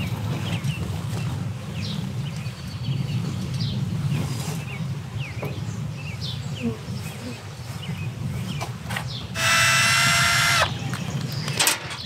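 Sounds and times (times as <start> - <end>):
small birds chirping: 4.7 - 12.0.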